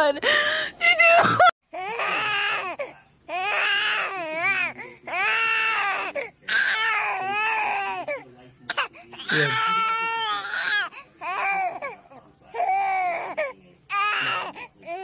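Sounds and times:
infant crying: 1.2 - 8.2, 9.2 - 15.0.

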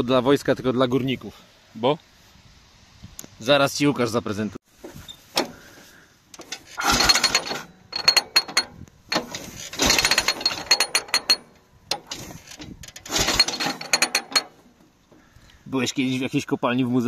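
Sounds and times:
ratcheting metallic clicks: 6.3 - 14.7.

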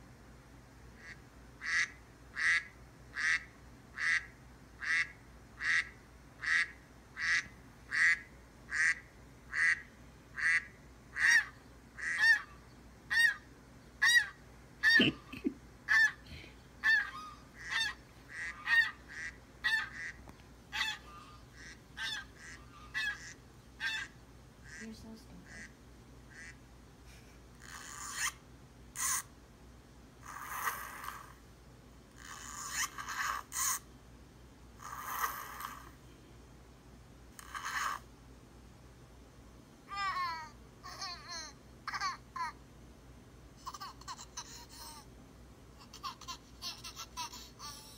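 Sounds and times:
ducks quacking through speaker: 1.0 - 12.5, 14.0 - 16.2, 16.8 - 26.6.

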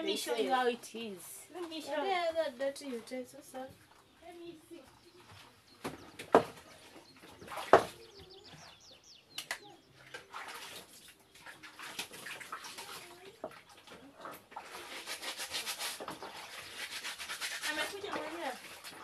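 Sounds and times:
rustling watery splashing: 0.0 - 19.0
bird chirps: 3.8 - 12.8.

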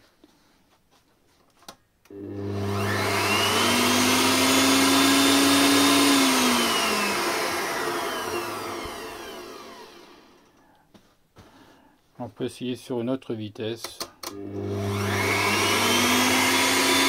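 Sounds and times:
stand mixer motor whirring: 2.1 - 10.5, 14.3 - 17.0.

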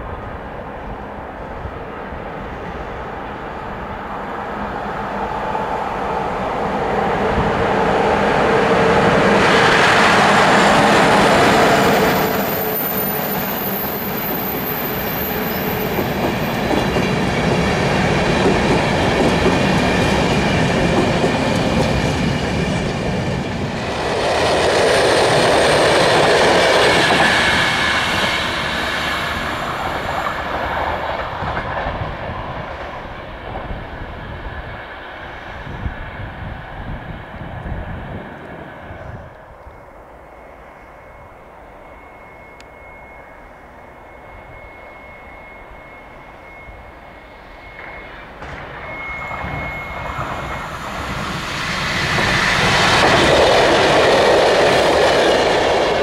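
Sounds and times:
train wheels rumbling on rails: 0.0 - 56.0
thin high whine: 38.4 - 53.2.

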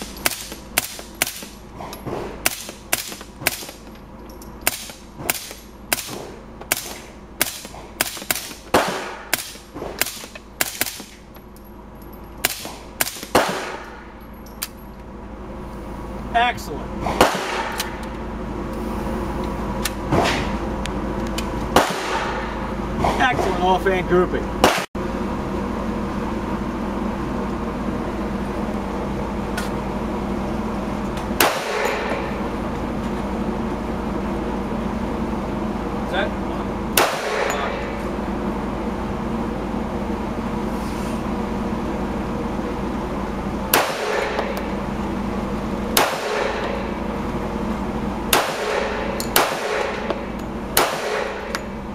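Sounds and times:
low ventilation hum: 0.0 - 51.9
suppressed gunshots echoing: 4.6 - 11.2, 45.9 - 46.9, 48.3 - 50.2, 50.8 - 51.4.

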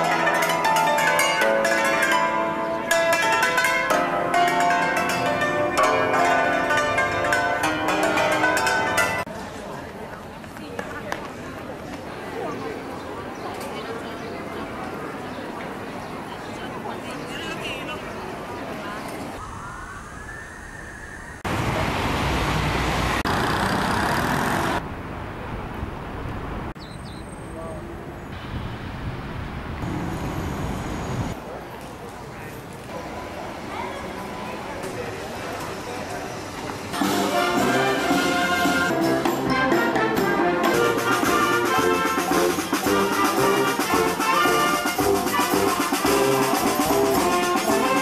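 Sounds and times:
cars passing on street: 0.0 - 19.4, 21.3 - 48.0
brass instruments playing: 37.0 - 48.0.

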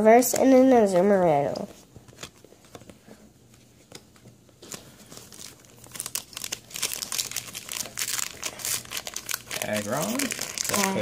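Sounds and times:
foil wrapper crinkling: 4.6 - 11.0.

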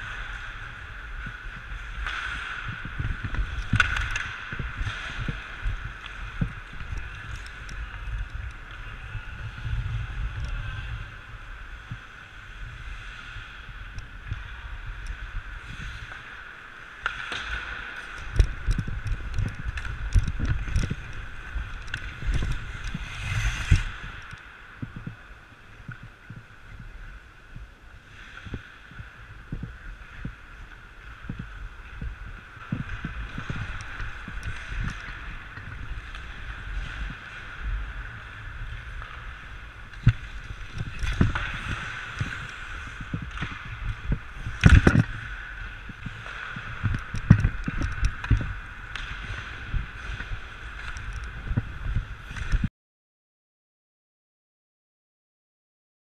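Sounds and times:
skates scraping on ice: 0.0 - 52.7.

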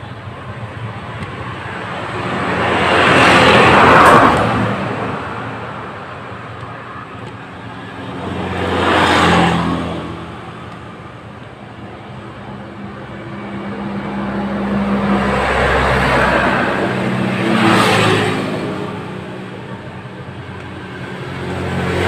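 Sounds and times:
vehicle engine passing by: 1.7 - 5.9, 8.0 - 10.5, 13.2 - 19.8.

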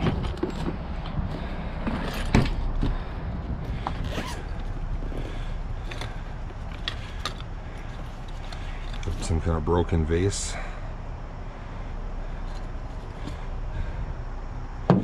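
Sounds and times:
suitcase zipper opening: 4.0 - 4.6.

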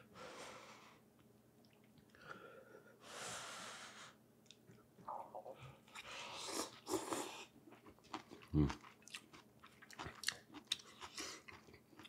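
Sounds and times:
person breathing: 0.0 - 1.1, 2.1 - 4.2, 5.5 - 6.7.

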